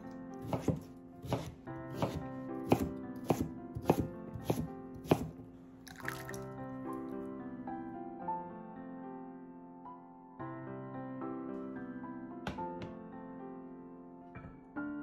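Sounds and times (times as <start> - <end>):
knife chopping on wooden board: 0.0 - 5.4
cubes splashing into water: 5.9 - 6.6.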